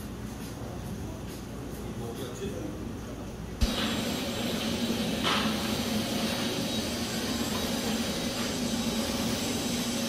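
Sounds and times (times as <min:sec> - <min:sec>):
machine hum: 0:03.6 - 0:10.0.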